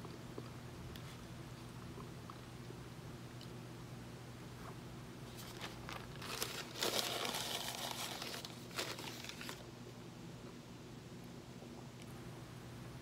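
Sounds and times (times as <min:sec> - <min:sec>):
paper napkin rustling and crinkling: 0:05.3 - 0:09.7.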